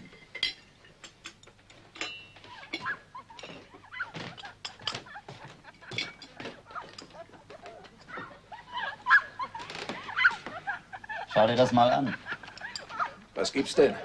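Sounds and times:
china cups and cutlery clinking: 0.0 - 7.2, 12.4 - 13.1.

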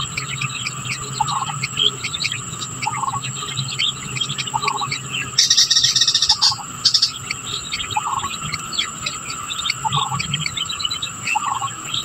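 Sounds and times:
high bird chirps: 0.0 - 12.0
high insect whine: 0.0 - 12.0
loud rapid chattering trill: 4.4 - 7.3.

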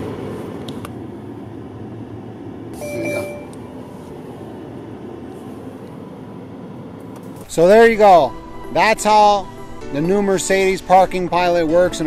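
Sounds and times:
low rumble inside car cabin: 0.0 - 11.8
short electronic beep: 2.8 - 3.8.

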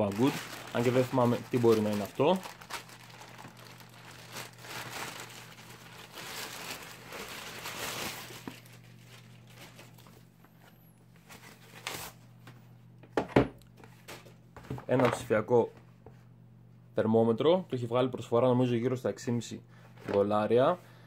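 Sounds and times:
foam wrap rustling: 0.0 - 10.3
plastic bag crinkling and tearing: 0.0 - 10.3.

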